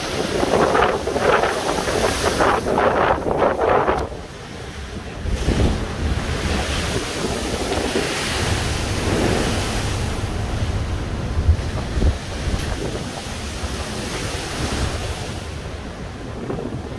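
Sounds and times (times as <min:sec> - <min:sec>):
storm waves breaking against wall: 0:00.0 - 0:16.9
wind rumbling on microphone: 0:00.0 - 0:16.9
water spray: 0:06.6 - 0:15.6.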